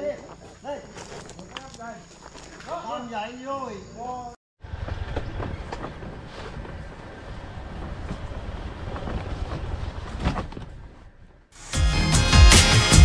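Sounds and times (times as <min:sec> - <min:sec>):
wind rumbling on microphone: 0:04.6 - 0:11.4.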